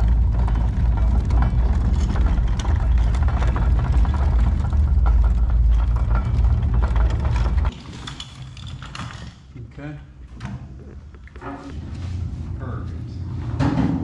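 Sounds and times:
casters rolling over driveway: 0.0 - 7.8
clicks and rattles: 0.0 - 9.5.

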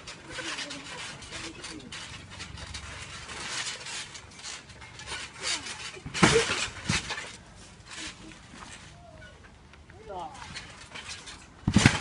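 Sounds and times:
scuffing and rustling on trampoline: 0.0 - 12.0
thud on trampoline: 3.1 - 7.4, 10.5 - 12.0.

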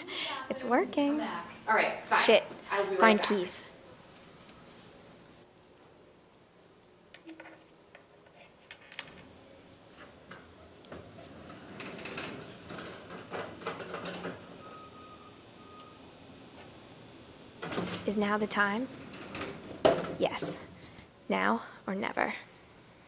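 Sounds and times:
keys jangling and clicking: 4.2 - 7.5, 8.7 - 14.4.

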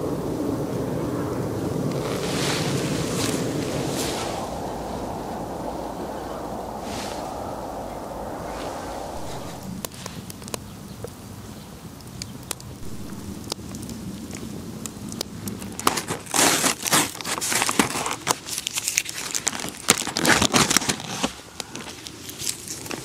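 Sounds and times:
campfire crackling and popping: 1.8 - 11.2, 11.9 - 17.6.

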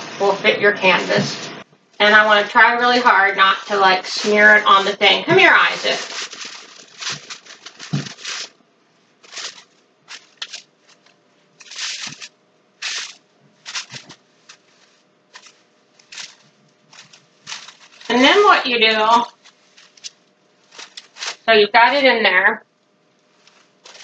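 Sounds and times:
plastic garbage bag rustling: 2.0 - 22.2, 23.2 - 24.0.

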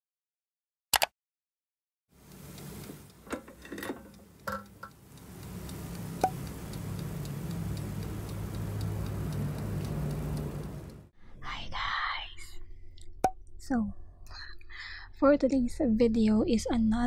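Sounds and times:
air fryer humming: 2.1 - 11.1
light ticking: 2.2 - 11.1.

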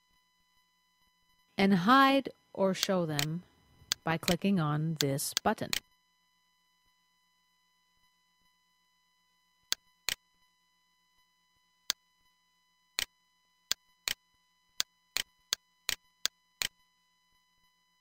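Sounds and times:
faint steady hum: 0.0 - 18.0
mouse button clicking: 2.8 - 3.3.

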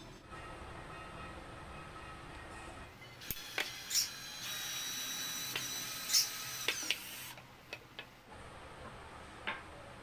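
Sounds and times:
screw clicks and squeaks: 3.2 - 4.6
cordless drill whine: 3.2 - 7.4.

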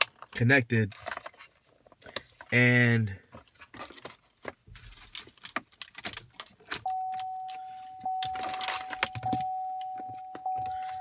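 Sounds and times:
car warning chime: 6.8 - 11.0.

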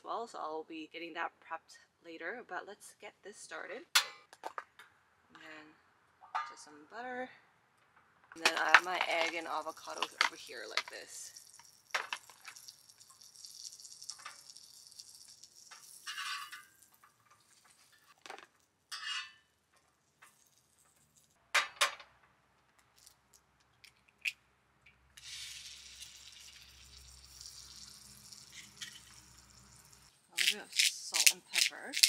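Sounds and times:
handling clatter: 8.4 - 12.7
egg cracking taps: 8.4 - 16.0
egg sizzling in butter: 8.4 - 18.7, 25.2 - 32.0.

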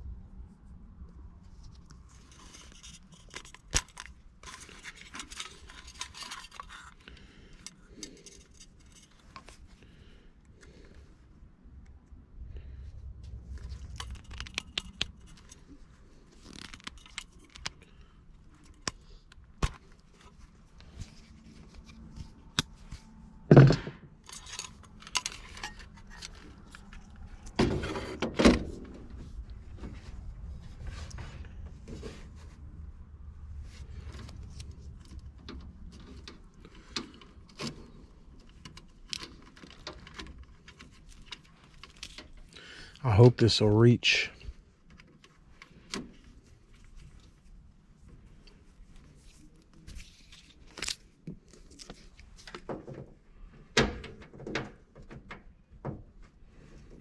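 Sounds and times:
tools and wires clicking and rustling: 1.9 - 11.0, 13.5 - 32.3, 33.7 - 43.0, 44.5 - 57.0.

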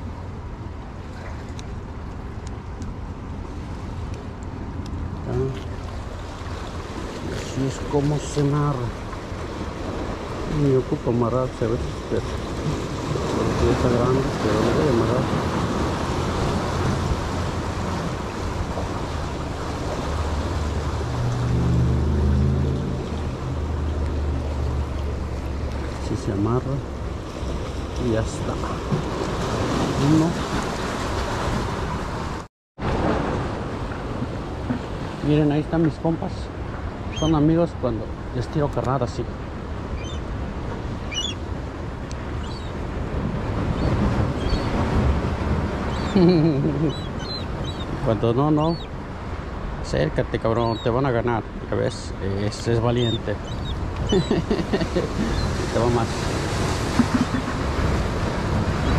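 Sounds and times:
surf washing against rocks: 0.8 - 58.9
gull calls: 37.1 - 37.4, 41.1 - 41.4, 46.8 - 47.9, 48.6 - 48.9, 53.0 - 54.5, 55.1 - 55.6
wind on microphone: 39.8 - 49.8, 53.0 - 58.9.

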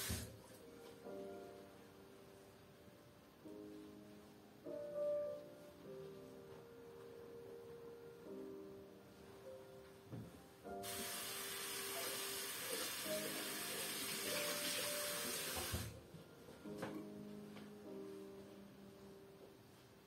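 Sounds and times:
water running from a tap: 0.0 - 0.3, 10.8 - 15.9
soft instrumental music: 0.0 - 20.0.

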